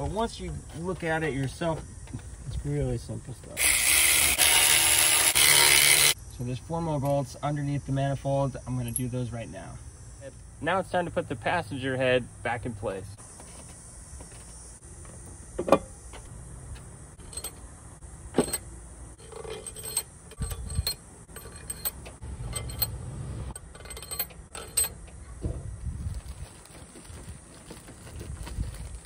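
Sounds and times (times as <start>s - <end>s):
metal parts clinking: 17.2s - 17.7s, 18.4s - 25.2s.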